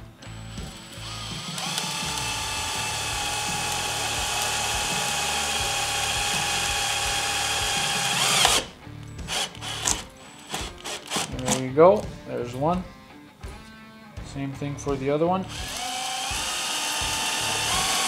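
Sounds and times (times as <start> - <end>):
cordless drill whining: 0.0 - 11.6, 15.4 - 18.0.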